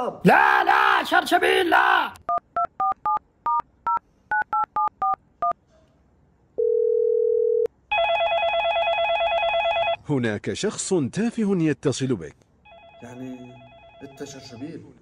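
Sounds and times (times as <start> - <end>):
steady dial tone: 6.6 - 10.0.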